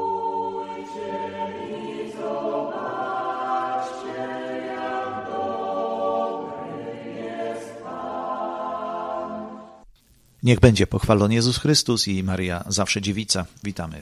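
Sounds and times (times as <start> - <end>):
choir singing held notes: 0.0 - 9.8.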